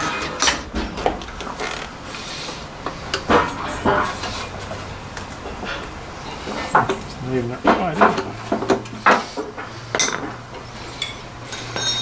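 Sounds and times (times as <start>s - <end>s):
metal tools clinking and knocking: 3.1s - 12.0s.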